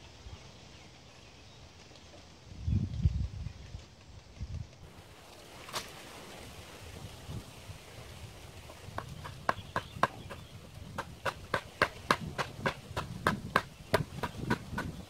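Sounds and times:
hand tool knocking: 0:11.0 - 0:15.0.

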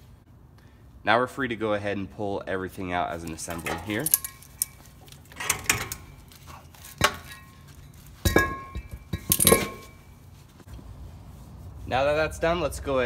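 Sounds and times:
metal clinks and knocks: 0:03.3 - 0:10.3.

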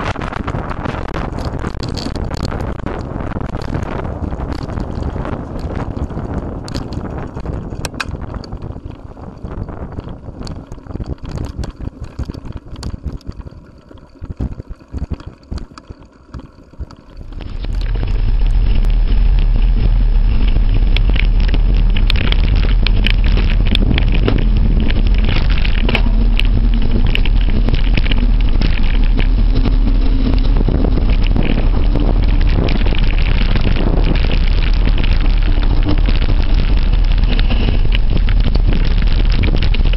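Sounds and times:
wind rumble on microphone: 0:00.0 - 0:39.9
mountain bike rattling on trail: 0:17.2 - 0:39.9.

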